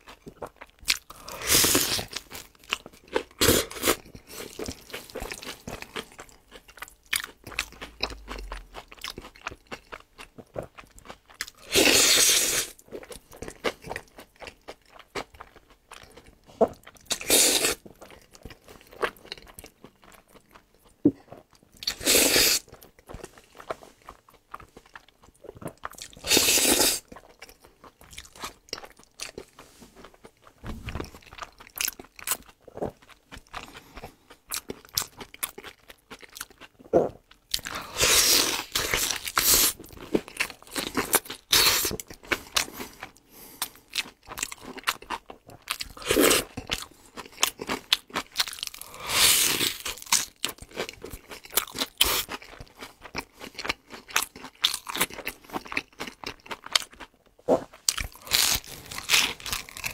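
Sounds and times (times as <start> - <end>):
wet chewing: 0.0 - 59.9
crunching bites of fried food: 37.4 - 59.9.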